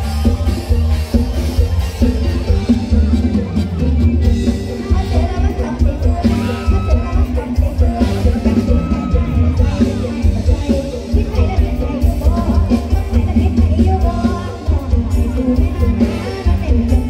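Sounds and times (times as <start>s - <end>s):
heavy bass beat: 0.0s - 17.0s
person singing: 0.0s - 17.0s.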